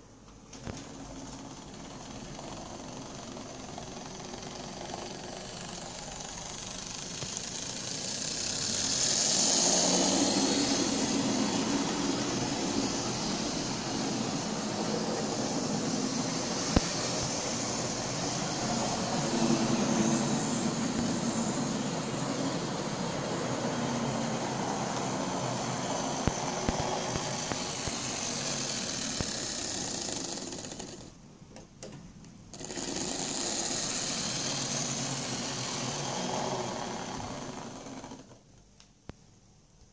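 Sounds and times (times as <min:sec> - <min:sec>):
model train motor whirring: 0:00.5 - 0:31.2, 0:32.5 - 0:38.4
wheels rattling along track: 0:00.8 - 0:31.1.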